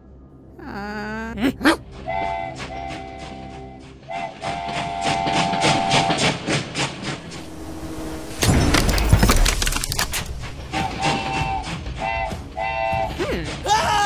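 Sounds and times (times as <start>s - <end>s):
rhythmic train chugging: 1.6s - 8.2s, 10.2s - 13.8s
train whistle chord: 1.9s - 6.5s, 10.7s - 13.2s
loud low crash: 6.2s - 11.3s.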